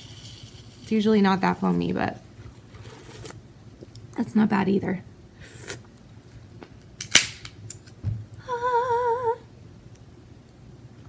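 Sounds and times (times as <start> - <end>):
person humming: 8.4 - 9.5.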